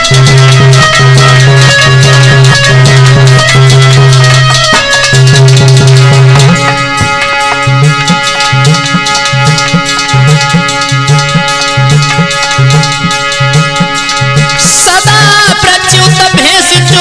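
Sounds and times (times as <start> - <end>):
held low melody note: 0.0 - 14.7
drum: 0.0 - 17.0
rattling percussion: 0.0 - 17.0.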